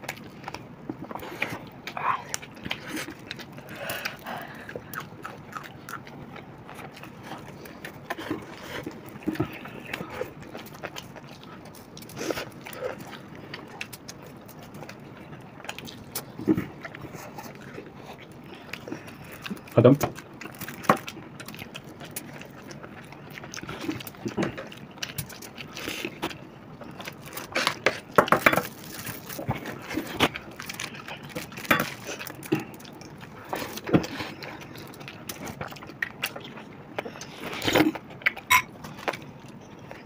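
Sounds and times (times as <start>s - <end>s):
chewing and mouth smacks: 0.0s - 40.0s
spoon clinking glass bowl: 38.5s - 38.7s.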